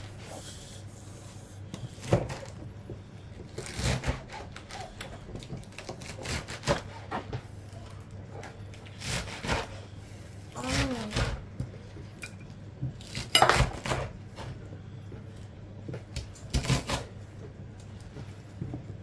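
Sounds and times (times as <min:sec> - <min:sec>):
low steady hum: 0:00.0 - 0:19.0
onion peeling knocks and rustles: 0:01.8 - 0:09.8.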